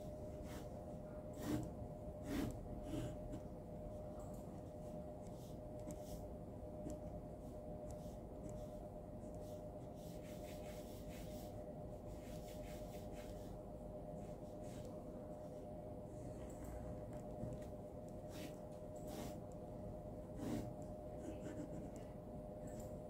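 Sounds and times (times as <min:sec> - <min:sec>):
faint steady hum: 0:00.0 - 0:23.0
pen scratching on paper: 0:01.4 - 0:03.5, 0:04.4 - 0:06.2, 0:06.8 - 0:11.5, 0:20.3 - 0:22.1.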